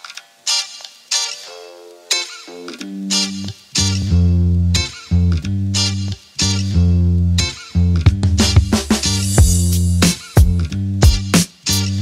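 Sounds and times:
plucked guitar notes: 0:01.2 - 0:11.3
deep bass line: 0:03.8 - 0:12.0.

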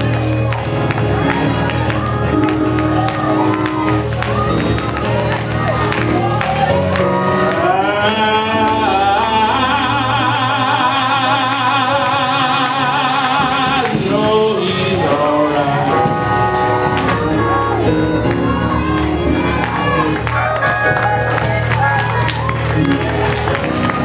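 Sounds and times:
instrumental backing: 0:00.0 - 0:24.0
man singing with vibrato: 0:07.5 - 0:17.0.

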